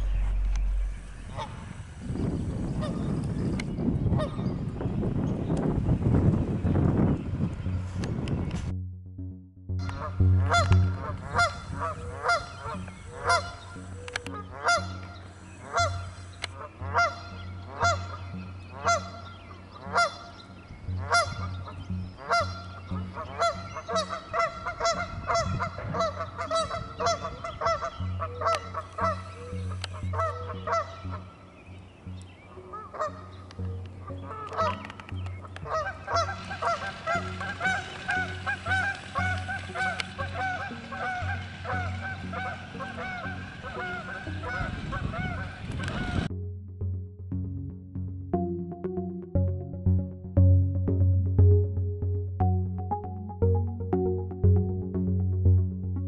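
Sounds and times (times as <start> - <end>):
geese honking: 0.0 - 2.0, 9.8 - 46.3.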